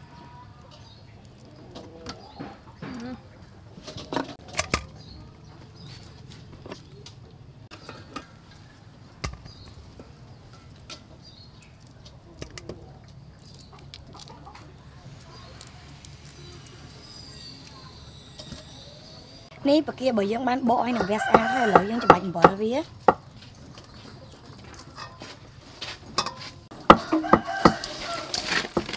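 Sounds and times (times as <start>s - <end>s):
birds chirping: 0.0s - 25.6s.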